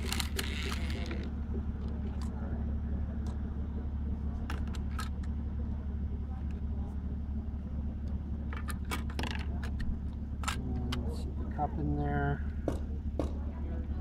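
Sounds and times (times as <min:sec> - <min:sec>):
plastic parts clicking and clattering: 0:00.0 - 0:01.3.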